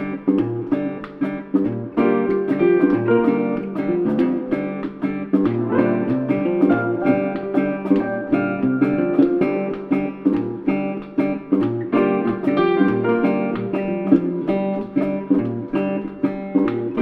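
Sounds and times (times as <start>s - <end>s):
acoustic guitar plucked and strummed: 0.0s - 17.0s.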